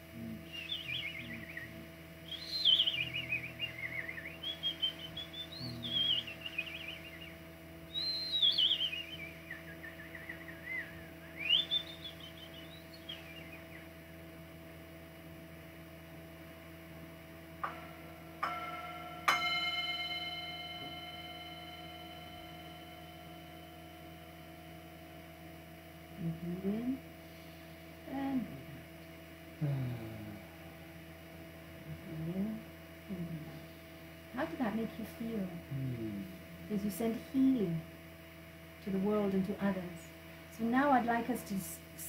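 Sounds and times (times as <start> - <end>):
person whistling with trills: 0.5 - 7.3, 7.9 - 13.5
small bell ringing: 18.4 - 24.4.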